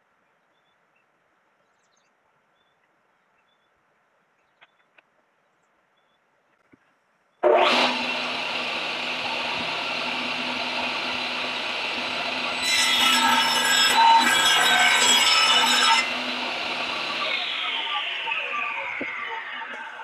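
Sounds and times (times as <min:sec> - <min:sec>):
table saw cutting log: 0:07.4 - 0:20.0.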